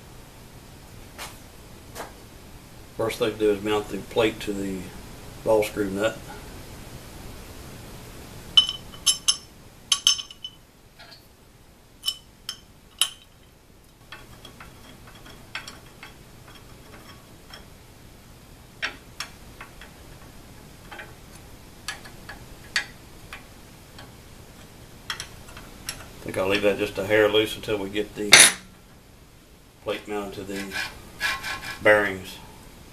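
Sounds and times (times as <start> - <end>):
metal plate clinking: 8.6 - 11.2, 12.0 - 13.5, 14.1 - 17.7, 28.3 - 28.8.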